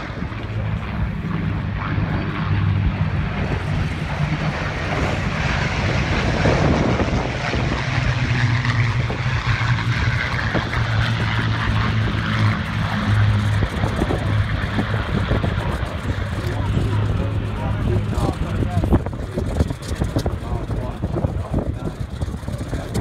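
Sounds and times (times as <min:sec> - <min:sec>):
propeller planes droning: 0:00.0 - 0:23.0.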